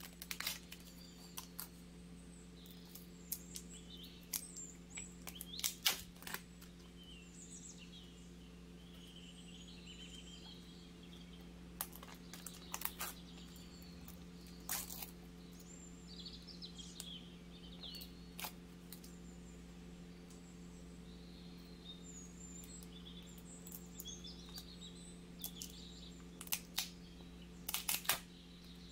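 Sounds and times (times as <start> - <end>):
plastic film crackling: 0.0 - 1.7, 5.2 - 6.8, 11.8 - 15.2, 27.6 - 28.3
steady low hum: 0.0 - 28.9.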